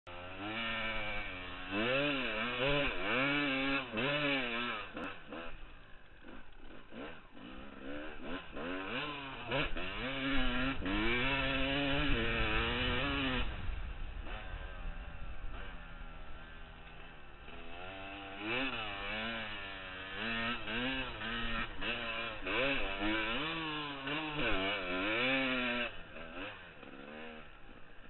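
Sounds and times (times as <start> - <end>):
motocross bike engine revving: 0.1 - 28.0
wind buffeting microphone: 10.8 - 16.9.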